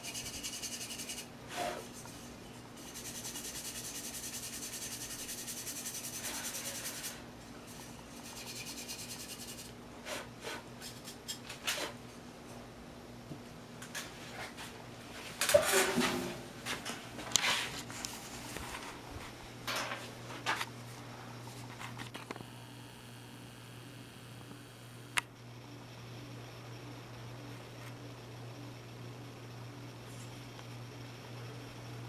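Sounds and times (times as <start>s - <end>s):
scratchy rubbing on clay: 0.0s - 7.1s, 7.7s - 11.2s.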